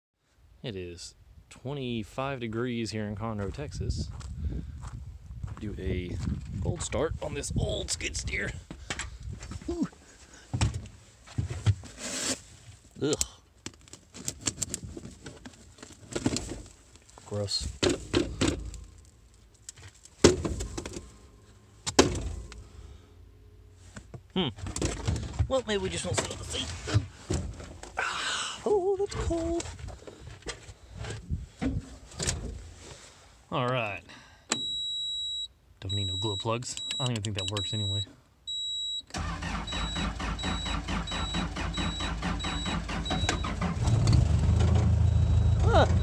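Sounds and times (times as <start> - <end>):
long key beep: 34.5 - 39.1, 39.7 - 43.6, 45.0 - 46.0
warning alarm beeping: 34.6 - 43.6, 45.0 - 46.0
diesel engine cranking: 39.1 - 46.0.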